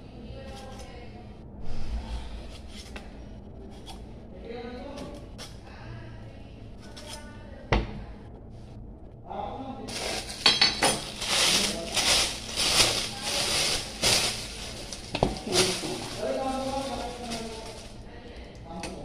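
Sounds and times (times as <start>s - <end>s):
clatter of kitchen things: 9.9s - 17.9s.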